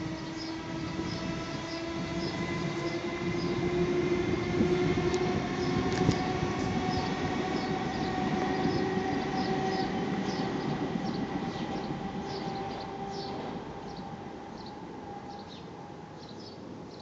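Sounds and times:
steady mechanical rumble: 0.0s - 9.5s
held humming tones: 0.0s - 16.0s.

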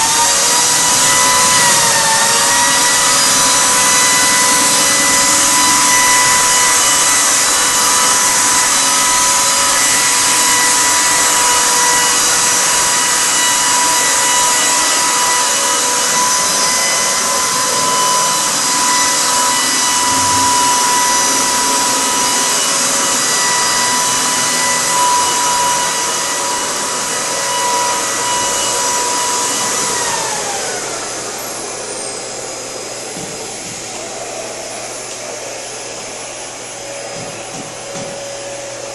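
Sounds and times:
electric motor whine: 0.0s - 38.9s
rush of air: 19.6s - 23.0s.

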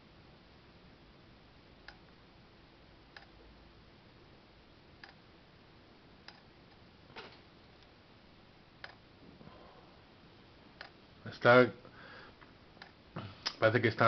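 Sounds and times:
meter needle clicking: 1.8s - 2.2s, 3.1s - 3.4s, 5.0s - 5.2s, 6.2s - 6.8s, 8.8s - 9.1s, 10.8s - 11.0s, 12.4s - 13.6s.

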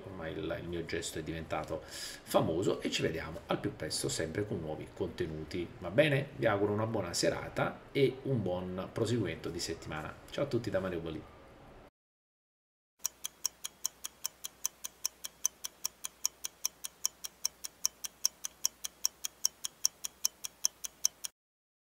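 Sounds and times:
watch ticking fast: 13.0s - 21.4s.

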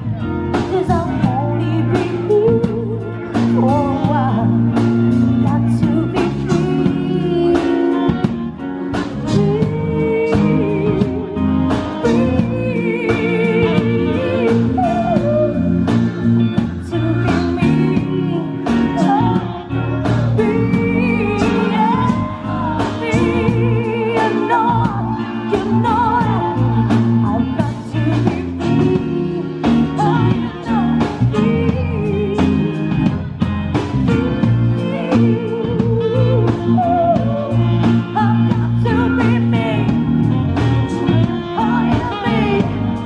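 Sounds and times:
bass guitar: 0.0s - 43.0s
drum kit: 0.0s - 43.0s
electric guitar: 0.0s - 43.0s
woman singing: 0.0s - 43.0s.

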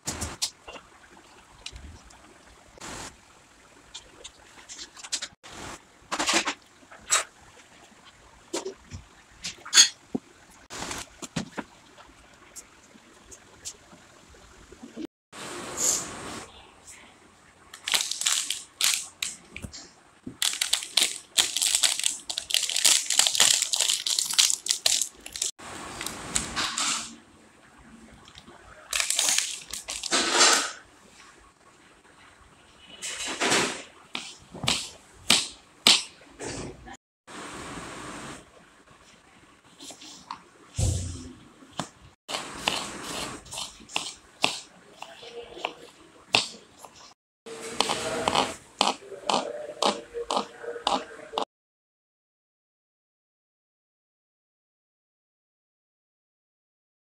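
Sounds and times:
plastic wrapper crinkling: 17.8s - 19.5s, 20.4s - 26.1s, 28.9s - 30.4s
spoon scraping ice cream: 47.5s - 51.4s.

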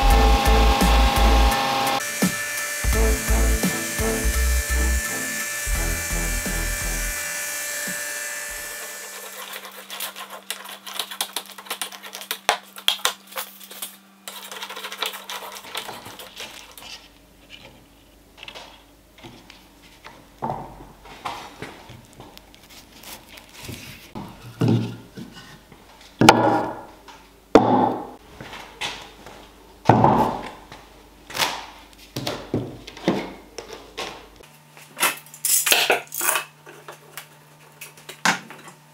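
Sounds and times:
music with heavy beat: 0.0s - 7.1s
drum sander hissing: 0.0s - 9.7s.

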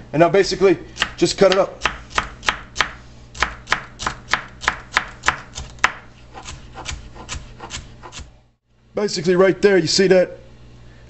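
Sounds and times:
knife chopping on wooden board: 1.0s - 8.3s.

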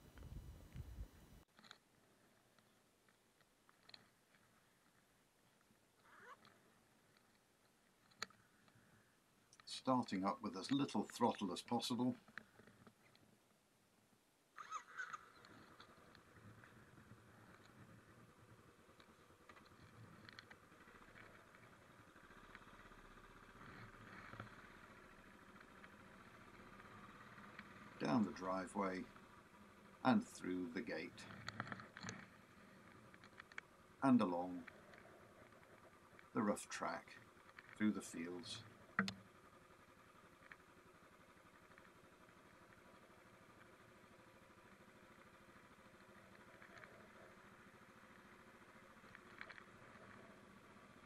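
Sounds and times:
motorcycle engine at low throttle: 0.0s - 1.4s, 14.6s - 51.0s.

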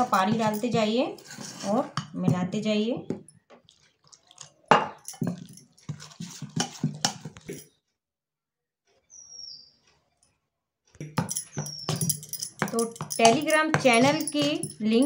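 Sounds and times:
spoon scraping steel bowl: 0.0s - 2.1s, 5.0s - 7.7s, 11.3s - 15.0s.

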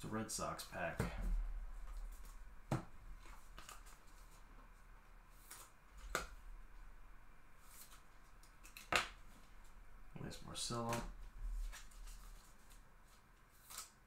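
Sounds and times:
trading cards being handled: 10.7s - 14.0s.

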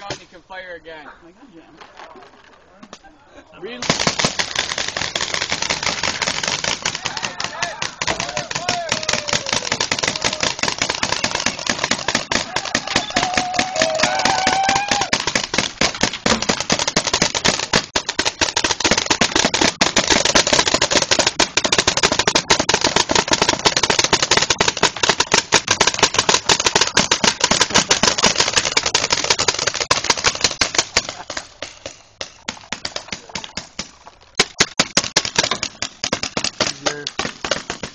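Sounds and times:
paintball markers firing: 3.8s - 37.9s
voices shouting: 6.9s - 15.2s.

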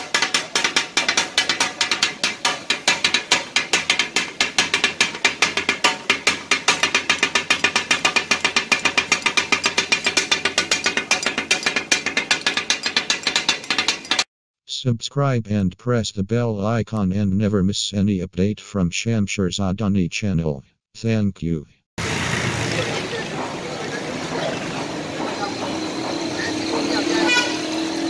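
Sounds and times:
steel blades chopping on griddle: 0.0s - 14.3s, 22.8s - 28.0s.

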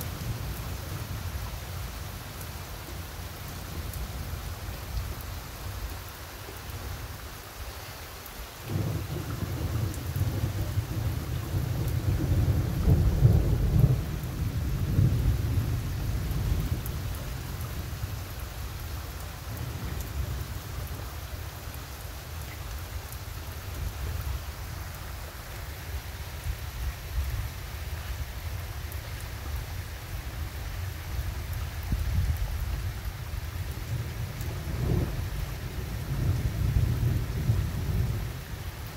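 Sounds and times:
steady rain: 0.0s - 38.9s
thunder rumbling: 8.6s - 18.0s, 33.5s - 38.7s.

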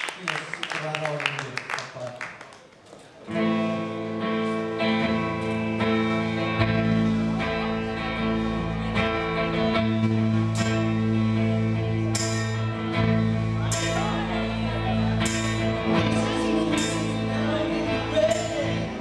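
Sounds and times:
bass guitar: 3.3s - 19.0s
electric guitar chords: 3.3s - 19.0s.

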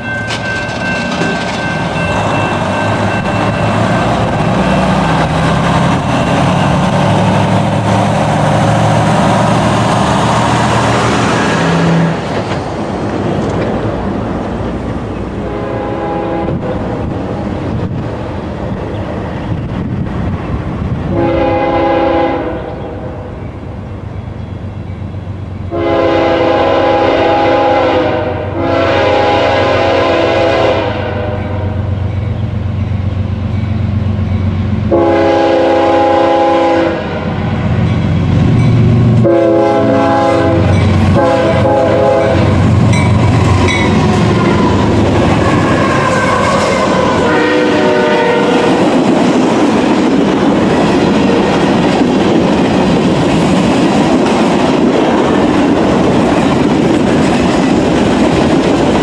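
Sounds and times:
train rumbling and rushing: 0.0s - 59.0s
train air horn blasts: 15.4s - 16.9s, 21.1s - 23.3s, 25.7s - 31.9s, 34.9s - 37.4s, 39.2s - 42.6s, 43.5s - 48.9s.

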